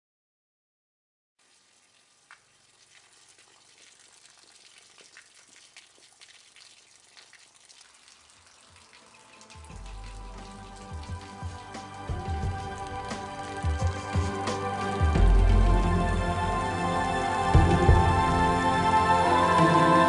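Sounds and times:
water stream splashing: 1.4s - 20.0s
music: 9.1s - 20.0s.

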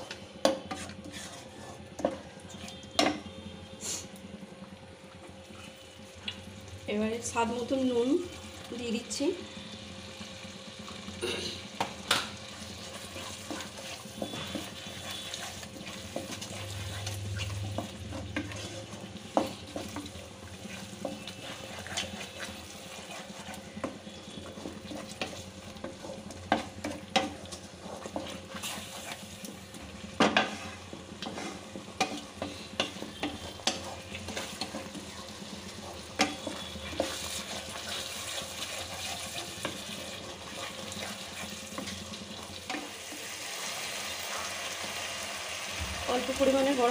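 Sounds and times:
spatula scraping and knocking pan: 0.0s - 3.2s, 11.8s - 42.9s
spice paste sizzling in oil: 0.4s - 4.1s, 5.5s - 46.9s.

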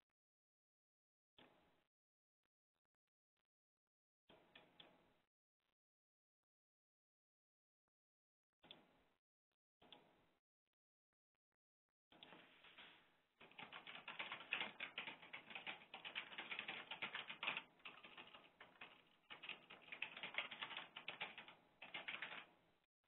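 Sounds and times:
keyboard typing: 13.4s - 22.6s.

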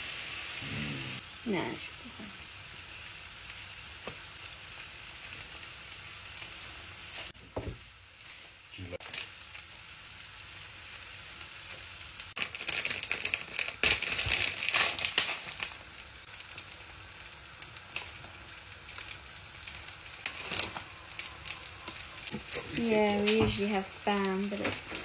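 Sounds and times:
rice sizzling in a frying pan: 0.0s - 25.0s
plastic bag rustling: 12.4s - 15.9s, 20.2s - 25.0s.

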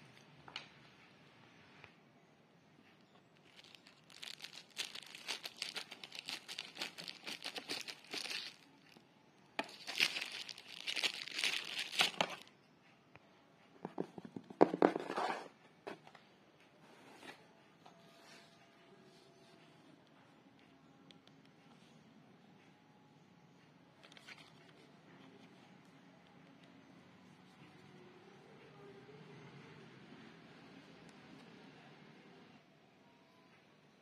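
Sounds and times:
plastic packaging crinkling: 3.4s - 9.0s, 9.6s - 12.5s.

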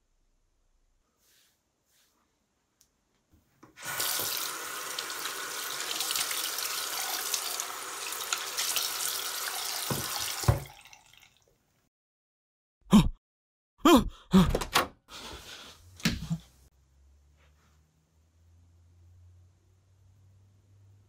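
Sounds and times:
faucet water splashing into sink: 3.8s - 11.5s.

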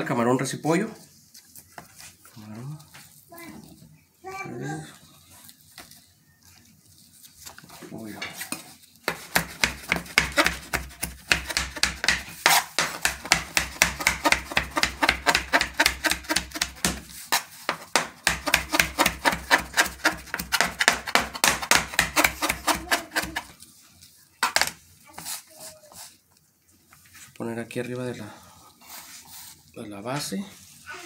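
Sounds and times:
knife chopping on plastic board: 9.0s - 23.5s.

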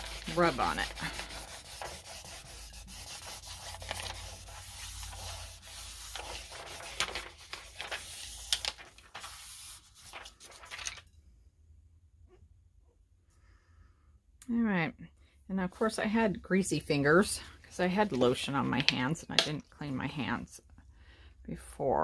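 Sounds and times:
hand rubbing paper: 0.0s - 10.8s.

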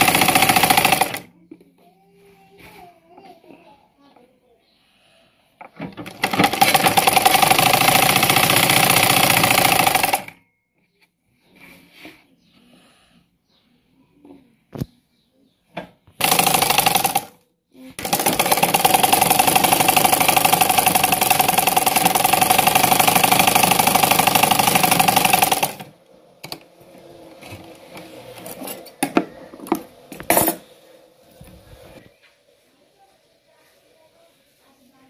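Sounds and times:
sewing machine stitching: 0.0s - 1.3s, 5.8s - 10.4s, 16.2s - 30.6s.

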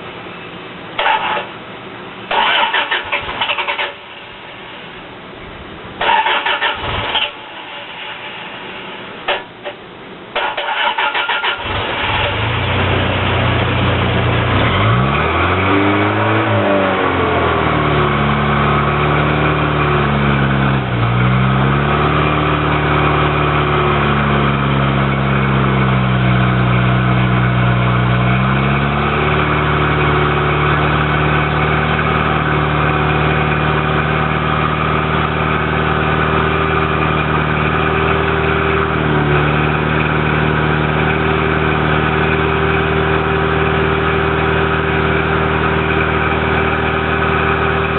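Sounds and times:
car engine revving and running: 1.0s - 4.9s, 6.0s - 9.7s, 10.4s - 47.9s
starter motor cranking: 6.0s - 7.3s, 10.4s - 12.4s.

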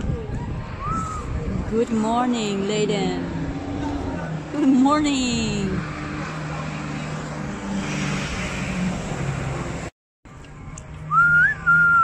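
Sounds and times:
road traffic hum: 0.0s - 12.0s
high whistling tone: 0.8s - 1.4s, 11.1s - 12.0s.

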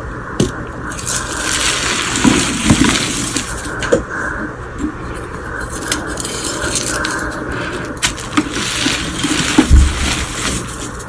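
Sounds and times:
chalk crushed by hand: 0.9s - 3.9s, 5.6s - 11.0s.

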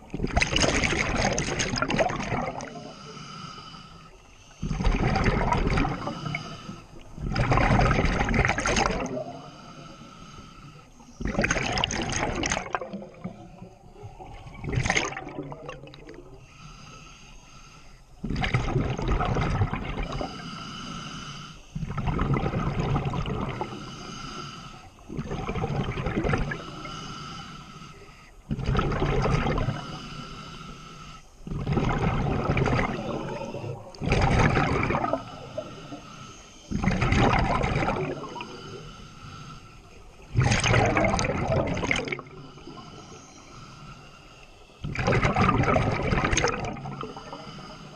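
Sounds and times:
bubbling exhalations: 0.2s - 2.9s, 4.6s - 6.6s, 7.2s - 9.4s, 11.2s - 13.4s, 14.3s - 16.3s, 18.2s - 20.3s, 21.8s - 23.8s, 25.1s - 26.7s, 28.5s - 29.9s, 31.5s - 36.0s, 36.7s - 38.7s, 40.3s - 42.8s, 44.8s - 47.4s
scuba regulator breathing hiss: 2.6s - 4.8s, 5.9s - 7.2s, 9.2s - 11.2s, 16.2s - 18.2s, 20.0s - 21.9s, 23.5s - 25.1s, 26.4s - 28.5s, 29.5s - 31.5s, 35.0s - 36.8s, 38.1s - 40.3s, 41.8s - 44.9s, 46.8s - 47.9s.

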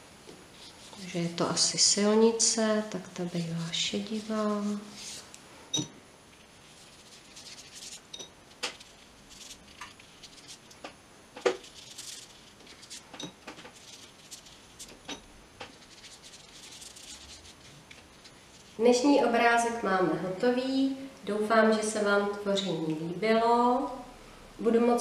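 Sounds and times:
paintbrush brushing on paper: 0.5s - 2.0s, 3.4s - 5.4s, 6.4s - 10.8s, 11.4s - 15.1s, 15.7s - 19.0s
brush tapping: 6.6s - 18.8s.

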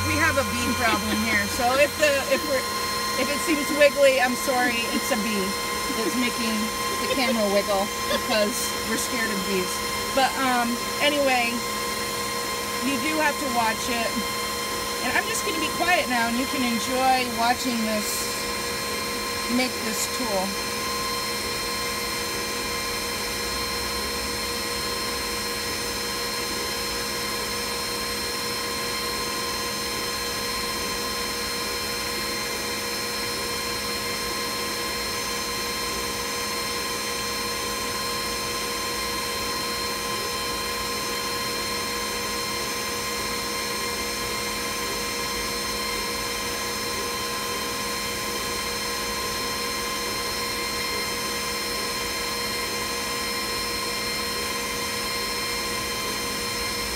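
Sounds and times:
high whine: 0.0s - 10.3s
laser cutter fans whirring: 0.0s - 56.9s.

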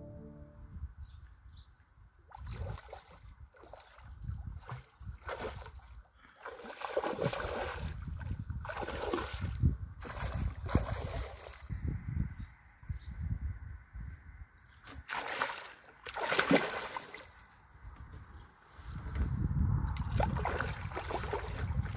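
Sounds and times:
fish splashing and thrashing: 2.3s - 11.7s, 14.9s - 17.4s, 19.9s - 21.9s.

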